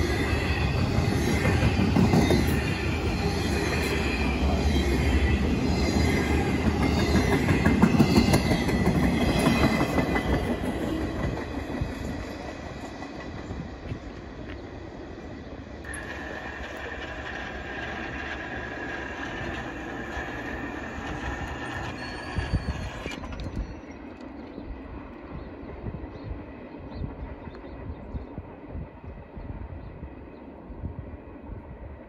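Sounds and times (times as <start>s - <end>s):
train wheel squeal: 0.0s - 13.9s, 15.8s - 24.7s
freight train rumble: 0.0s - 32.0s.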